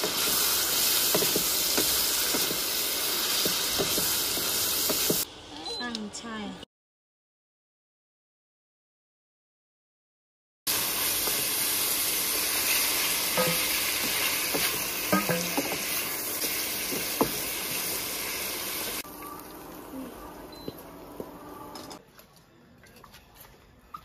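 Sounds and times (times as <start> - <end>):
meat and tofu sizzling in a wok: 0.0 - 5.3, 10.7 - 19.0.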